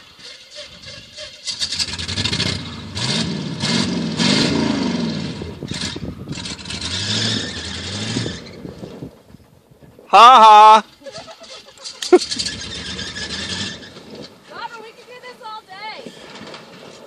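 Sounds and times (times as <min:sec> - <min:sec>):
pickup truck engine revving: 0:00.0 - 0:08.8, 0:12.0 - 0:14.2.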